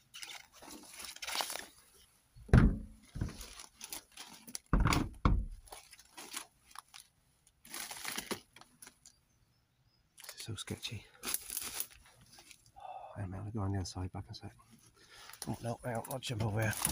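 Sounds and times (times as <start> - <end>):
dead leaves crunching underfoot: 0.0 - 2.1, 3.2 - 4.7, 5.6 - 9.1, 11.2 - 12.7, 15.1 - 16.9
twigs snapping underfoot: 0.1 - 1.8, 5.7 - 9.2, 11.2 - 12.8
heavy footfalls thudding: 2.5 - 3.4.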